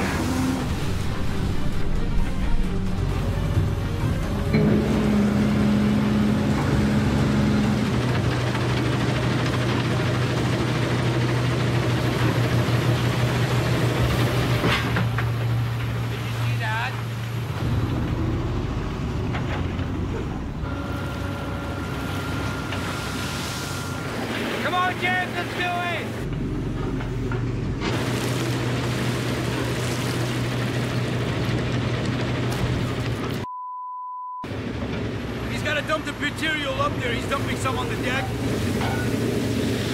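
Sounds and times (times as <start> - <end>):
rushing water: 0.0 - 18.8, 20.9 - 26.3, 27.8 - 33.2, 34.5 - 39.9
heavy diesel machinery running: 0.0 - 33.4, 34.4 - 39.9
low engine hum: 0.0 - 33.5, 34.4 - 39.9
wet gravel pouring: 27.8 - 33.2.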